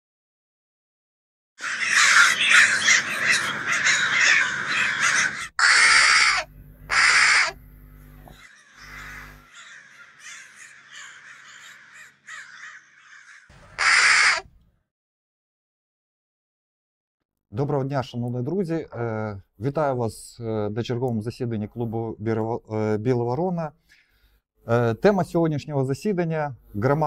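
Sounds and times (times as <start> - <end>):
crows cawing: 1.6 - 7.6, 8.3 - 14.6.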